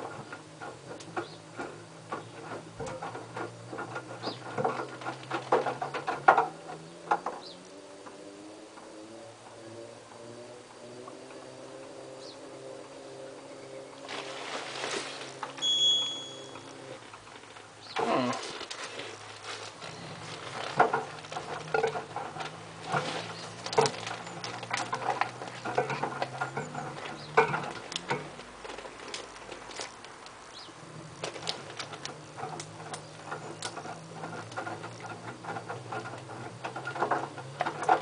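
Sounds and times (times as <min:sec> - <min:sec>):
laundry sloshing in drum: 0:00.0 - 0:07.0, 0:13.8 - 0:15.7, 0:18.4 - 0:38.0.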